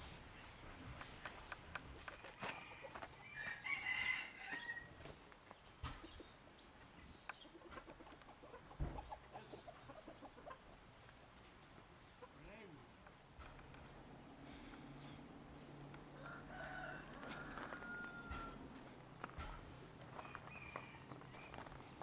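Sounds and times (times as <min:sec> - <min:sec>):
rooster crowing: 0:02.4 - 0:05.0, 0:16.1 - 0:18.8, 0:20.2 - 0:21.2.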